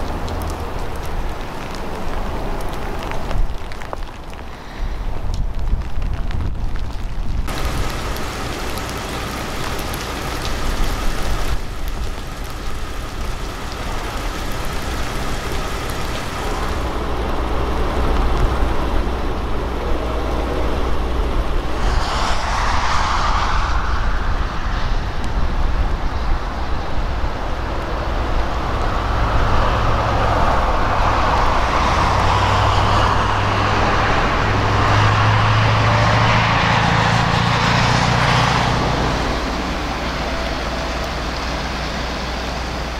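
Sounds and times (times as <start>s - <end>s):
low engine hum: 0.0s - 42.9s
rushing river water: 7.5s - 19.8s.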